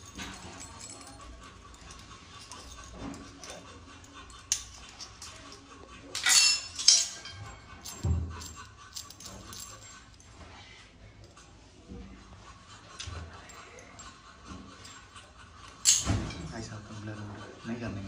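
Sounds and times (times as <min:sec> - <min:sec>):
metal utensils clinking: 0:00.0 - 0:09.9, 0:15.8 - 0:16.6.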